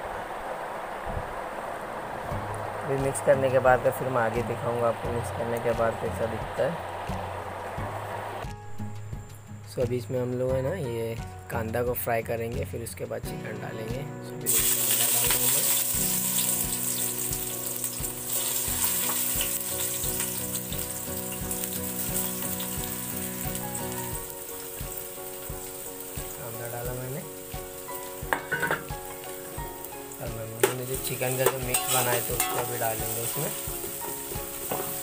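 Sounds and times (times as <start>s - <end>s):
onions sizzling in hot oil: 14.5s - 35.0s.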